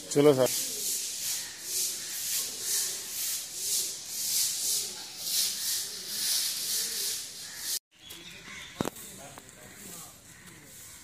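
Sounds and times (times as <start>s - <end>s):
broom sweeping a tiled floor: 0.5s - 7.8s.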